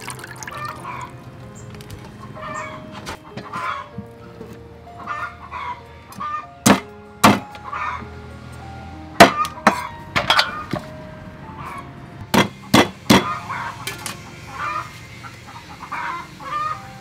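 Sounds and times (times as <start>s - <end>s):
chickens clucking: 2.1s - 4.1s, 5.0s - 6.5s, 12.6s - 16.9s
meat cleaver chopping on wood: 6.7s - 7.4s.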